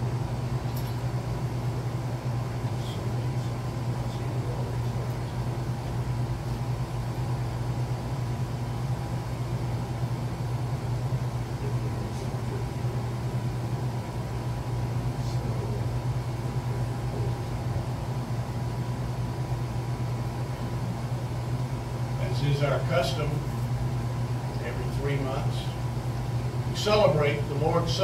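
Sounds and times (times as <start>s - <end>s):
air conditioner humming: 0.0s - 28.0s.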